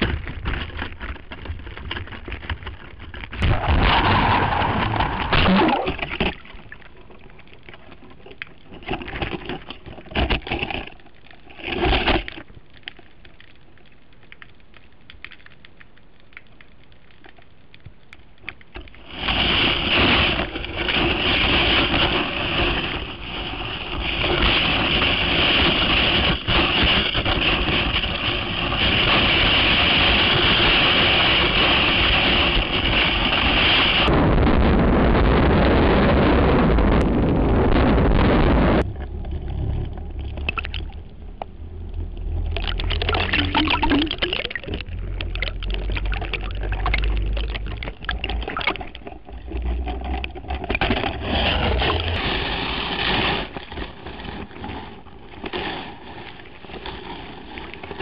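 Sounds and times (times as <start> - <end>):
water rushing against camera: 0.0 - 12.8, 18.4 - 58.0.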